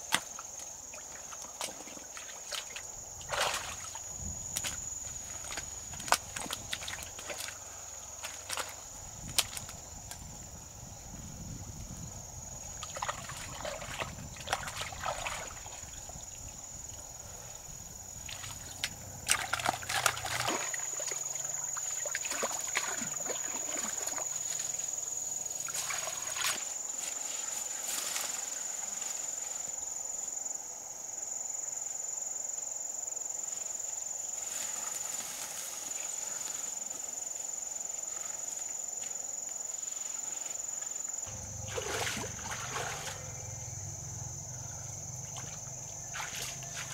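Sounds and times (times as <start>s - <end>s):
water sloshing and splashing: 0.9s - 7.6s, 8.2s - 9.7s, 12.7s - 16.2s, 18.2s - 24.8s, 25.6s - 26.8s, 41.3s - 43.4s, 45.2s - 46.9s
steady high-pitched whine: 41.2s - 46.9s.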